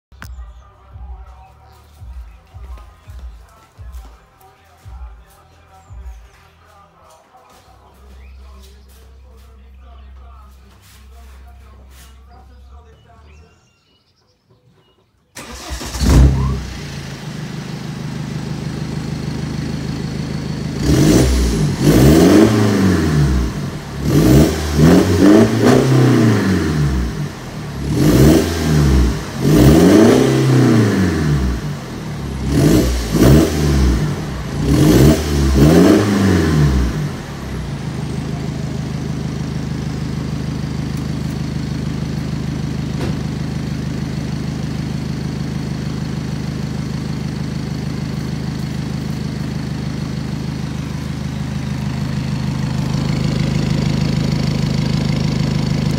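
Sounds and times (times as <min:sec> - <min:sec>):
diesel car engine starting: 0:15.3 - 0:55.9
engine revving: 0:15.4 - 0:55.9.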